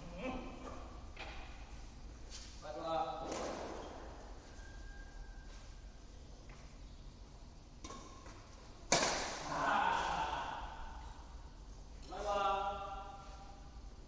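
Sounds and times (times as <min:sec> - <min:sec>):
racket hitting shuttlecock: 0:07.8 - 0:10.9.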